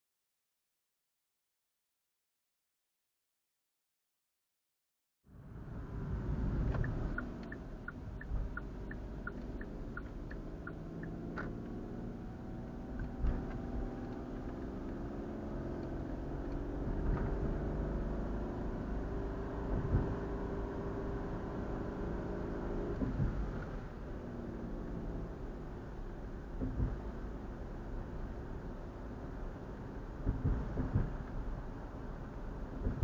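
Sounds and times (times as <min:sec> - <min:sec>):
car engine and road rumble: 0:05.2 - 0:33.0
quick even ticking: 0:06.7 - 0:11.2.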